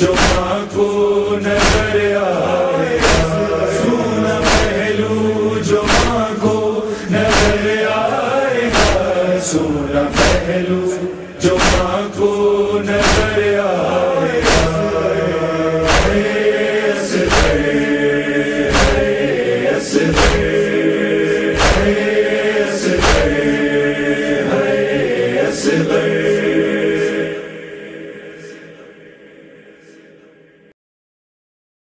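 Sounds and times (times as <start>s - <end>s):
sharp regular beats: 0.0s - 6.4s, 7.2s - 7.8s, 10.1s - 10.6s, 11.5s - 12.1s, 12.9s - 13.5s, 14.3s - 16.6s, 17.2s - 19.4s, 20.0s - 22.2s, 22.8s - 24.2s
voices chanting a refrain: 0.0s - 30.7s.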